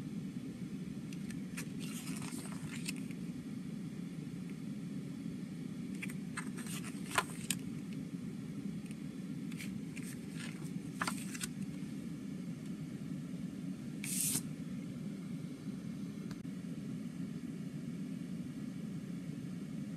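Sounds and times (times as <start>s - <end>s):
steady low hum: 0.0s - 19.9s
paper pages rustling: 1.2s - 3.2s, 6.0s - 7.6s, 9.5s - 11.7s, 14.0s - 14.4s.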